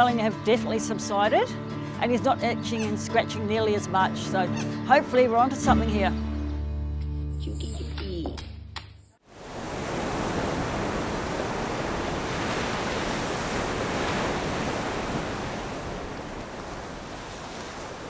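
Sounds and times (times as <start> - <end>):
ocean waves breaking: 9.3 - 18.0.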